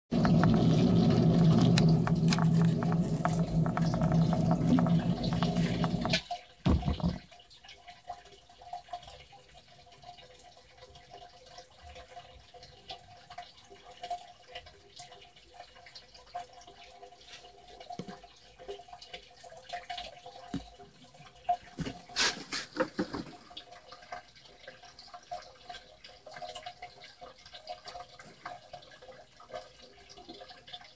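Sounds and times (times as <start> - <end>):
sump pump humming: 0.1 - 7.4
water trickling into pit: 0.1 - 30.9
pump shutting off thump: 0.2 - 7.2
knocks: 2.9 - 7.3.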